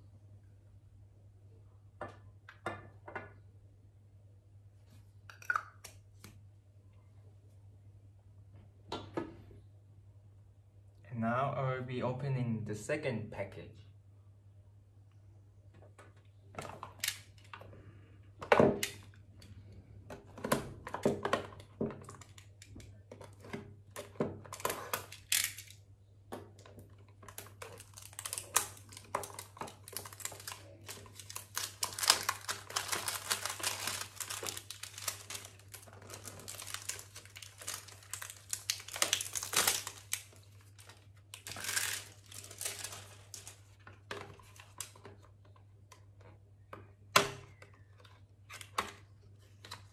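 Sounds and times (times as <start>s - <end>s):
low electrical hum: 0.0s - 49.9s
cardboard packaging crinkling and tearing: 27.3s - 43.8s.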